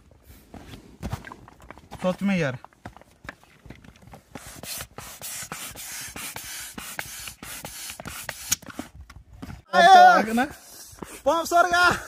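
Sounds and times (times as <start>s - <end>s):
hand air pump hissing: 4.3s - 8.8s.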